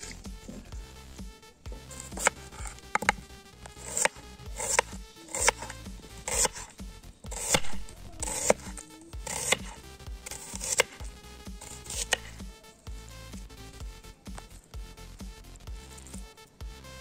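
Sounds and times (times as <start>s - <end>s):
background music: 0.0s - 17.0s
knife slicing onion: 1.8s - 3.2s, 3.8s - 11.0s, 11.6s - 12.4s.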